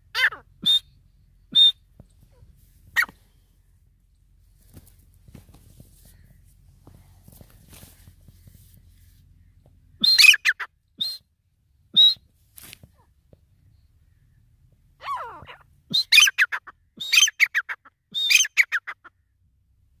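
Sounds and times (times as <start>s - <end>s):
francolin calling: 9.4s - 11.2s, 15.0s - 19.1s.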